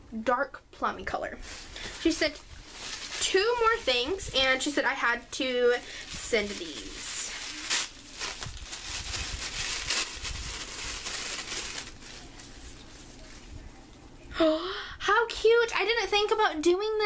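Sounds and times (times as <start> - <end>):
packaging crinkling and tearing: 1.5 - 4.5, 5.5 - 13.1.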